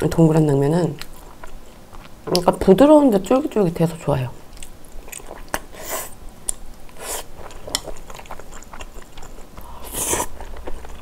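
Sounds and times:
wet chewing: 0.8s - 2.6s, 4.5s - 5.8s, 6.4s - 11.0s.

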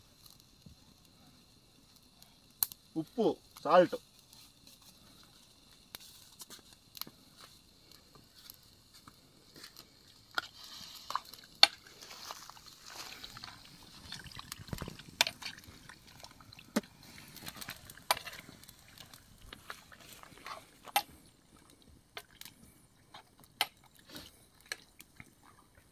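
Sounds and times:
metal spoon scraping a pan: 17.6s - 18.5s.

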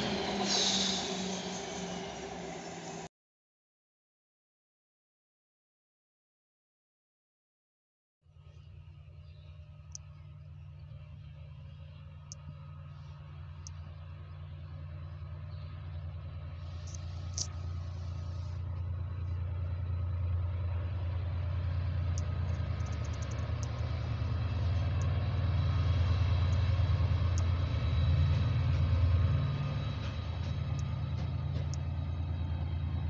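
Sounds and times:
diesel locomotive engine drone: 0.0s - 3.1s, 8.3s - 33.0s
faint high-pitched ticks: 13.6s - 13.9s, 22.1s - 23.9s.

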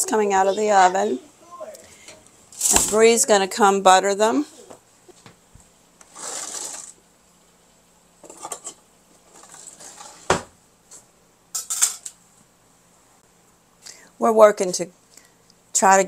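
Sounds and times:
baking pan scraping and brushing: 6.1s - 7.0s, 8.2s - 10.4s.

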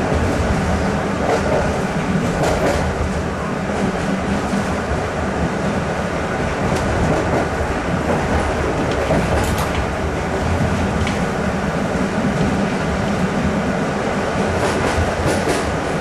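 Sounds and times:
train wheels rumbling on rail: 0.0s - 16.0s.

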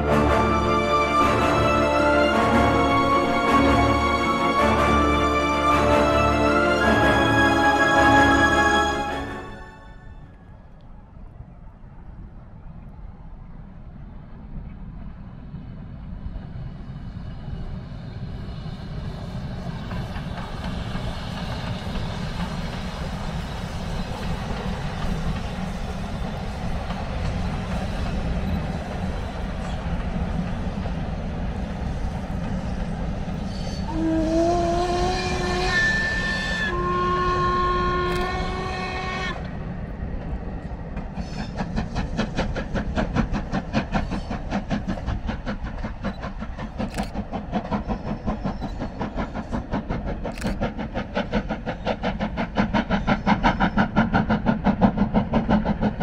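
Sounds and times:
steam train rumble: 0.0s - 56.0s
steam whistle blasts: 33.5s - 39.4s.

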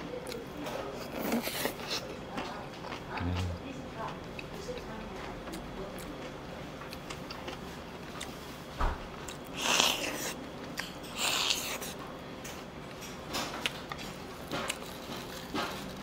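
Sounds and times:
chewing and mouth noises: 0.2s - 8.5s.

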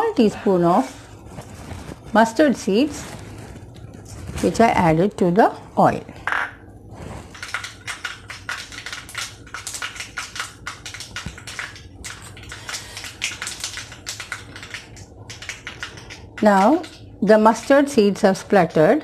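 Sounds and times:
mustard seeds spluttering in hot oil: 7.3s - 18.5s.

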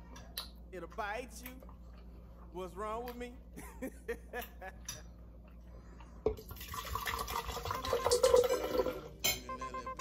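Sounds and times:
wine gurgling from bottle: 6.4s - 9.1s.

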